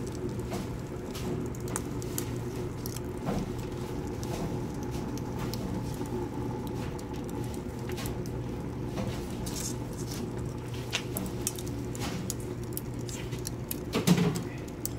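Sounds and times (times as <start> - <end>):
low rumble of heater: 0.0 - 14.9
wood fire crackling and popping: 0.0 - 14.9.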